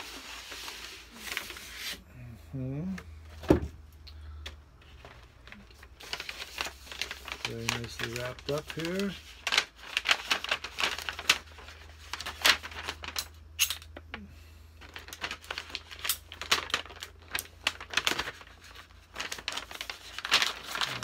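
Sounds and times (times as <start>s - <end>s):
package crinkling and rustling: 4.8s - 14.1s, 14.8s - 21.0s.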